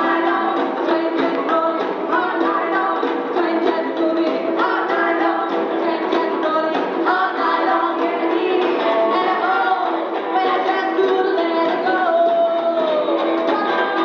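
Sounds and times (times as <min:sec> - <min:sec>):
live rock band playing: 0:00.0 - 0:14.0
women singing: 0:00.0 - 0:14.0.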